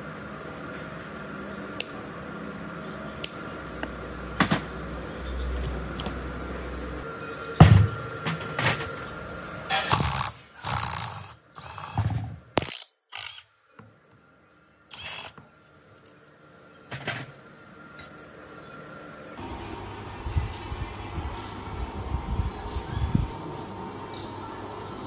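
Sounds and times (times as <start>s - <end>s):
tool turning screw: 9.7s - 13.4s, 14.9s - 15.4s
sharp metal clicks: 9.7s - 13.5s.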